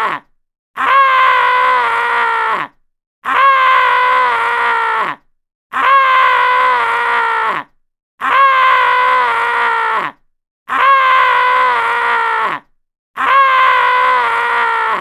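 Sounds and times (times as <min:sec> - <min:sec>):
man screaming: 0:13.2 - 0:15.0.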